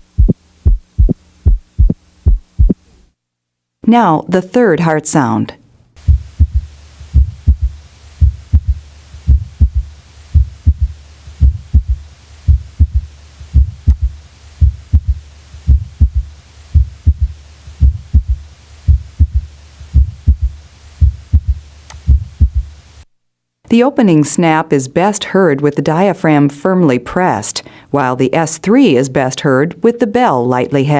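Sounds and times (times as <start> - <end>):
heartbeat through stethoscope: 0.0 - 2.8, 6.0 - 22.8.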